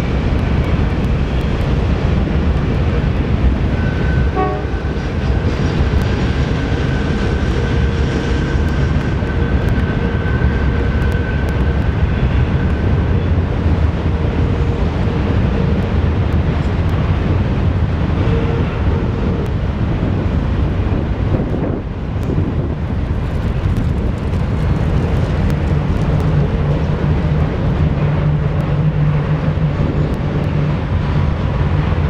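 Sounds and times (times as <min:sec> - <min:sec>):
diesel locomotives passing: 0:00.0 - 0:32.0.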